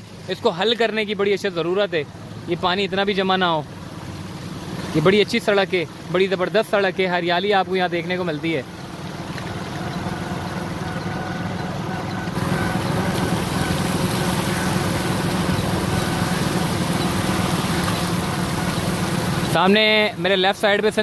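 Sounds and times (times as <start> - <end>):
vehicle engine running: 0.0 - 21.0
rushing water hiss: 12.4 - 21.0.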